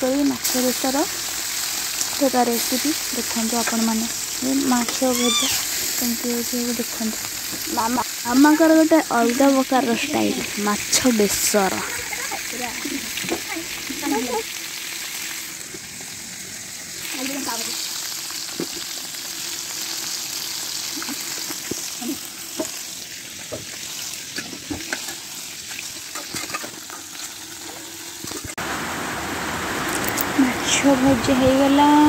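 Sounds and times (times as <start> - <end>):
fish sizzling in oil: 0.0 - 32.0.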